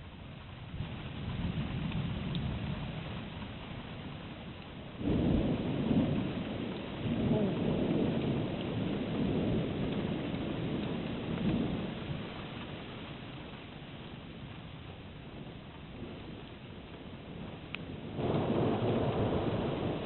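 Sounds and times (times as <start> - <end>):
rolling thunder: 5.0 - 12.8, 15.3 - 20.0.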